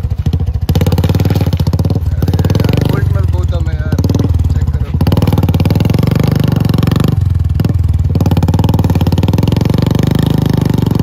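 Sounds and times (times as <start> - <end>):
motorcycle engine under load: 0.0 - 11.0.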